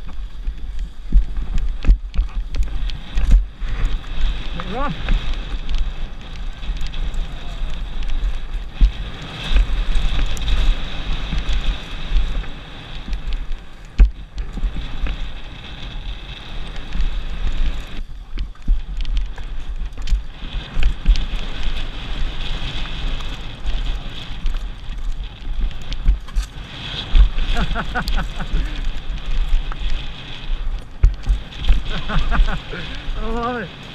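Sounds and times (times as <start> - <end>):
bike knocks and rattles: 0.0 - 32.6
bike tyre noise: 0.0 - 33.9
wind buffeting microphone: 0.0 - 33.9.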